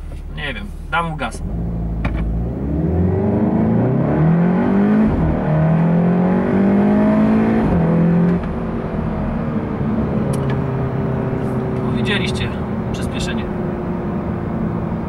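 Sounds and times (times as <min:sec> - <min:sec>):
car engine accelerating hard: 0:00.9 - 0:15.0.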